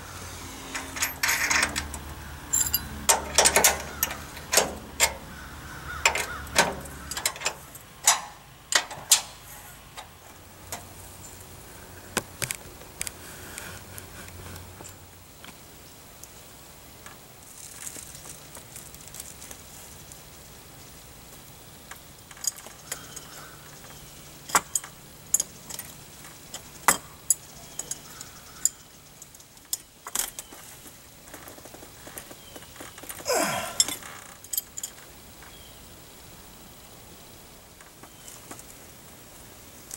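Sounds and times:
metal fittings and wrench clinking: 0:00.7 - 0:05.2, 0:06.0 - 0:09.4, 0:24.5 - 0:30.4, 0:33.4 - 0:35.0.

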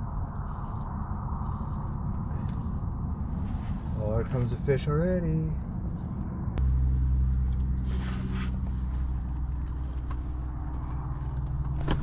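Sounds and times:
low mechanical hum: 0:00.0 - 0:12.0
short rustling scrape: 0:07.8 - 0:09.2.

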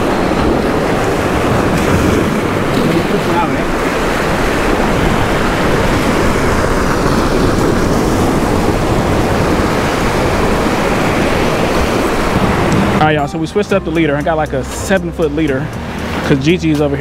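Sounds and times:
surf breaking against rocks: 0:00.0 - 0:13.2.

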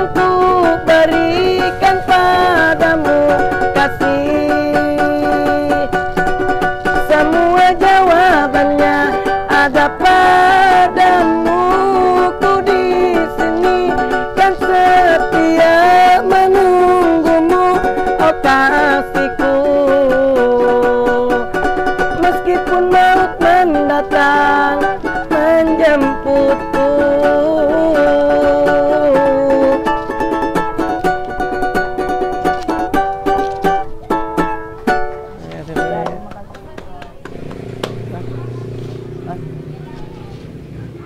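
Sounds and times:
person singing: 0:00.0 - 0:30.9
small stringed instrument strummed: 0:00.0 - 0:41.0.

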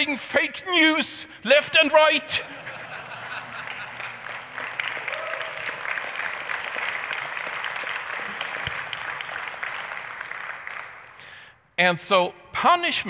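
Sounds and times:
audience applauding: 0:02.9 - 0:11.4.

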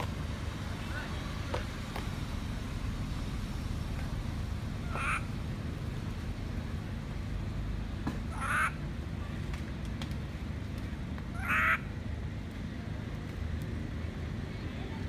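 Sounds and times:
low background rumble: 0:00.0 - 0:15.0
baby monkey crying: 0:04.8 - 0:05.4, 0:08.3 - 0:08.8, 0:11.4 - 0:11.9.

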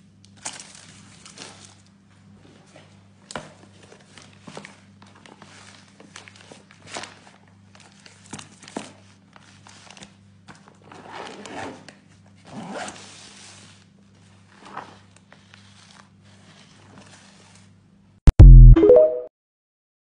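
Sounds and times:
zipper rasping closed: 0:12.5 - 0:13.0.

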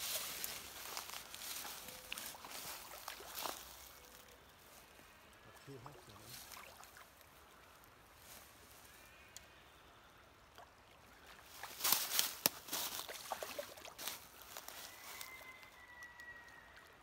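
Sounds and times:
faint outdoor ambience: 0:00.0 - 0:17.0
fish splashing at surface: 0:13.0 - 0:14.0.

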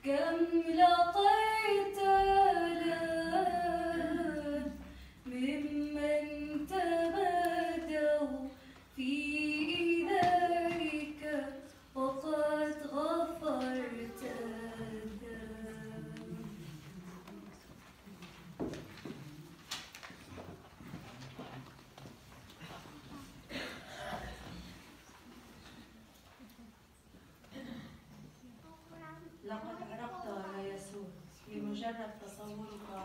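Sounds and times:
women singing a hymn: 0:00.0 - 0:16.9.

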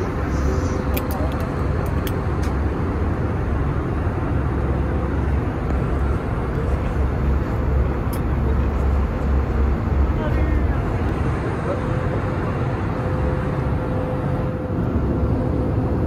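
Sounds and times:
aircraft cabin engine and airflow noise: 0:00.0 - 0:16.0
deep rumble: 0:00.0 - 0:16.0.

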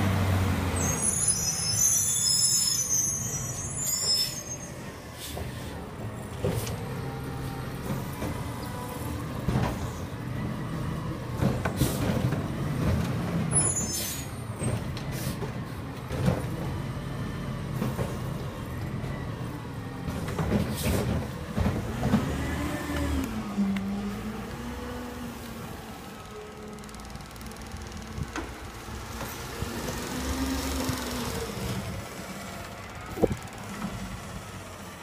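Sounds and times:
garbage truck diesel engine rumbling: 0:00.0 - 0:35.0.

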